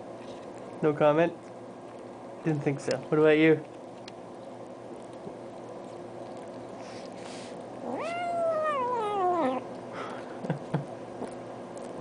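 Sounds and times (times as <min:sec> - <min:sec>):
cat meowing: 0:07.8 - 0:09.6.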